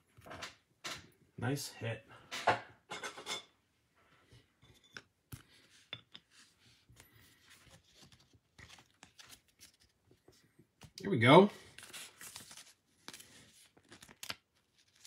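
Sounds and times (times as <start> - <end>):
cards moved about: 5.0 - 11.0, 11.6 - 15.0.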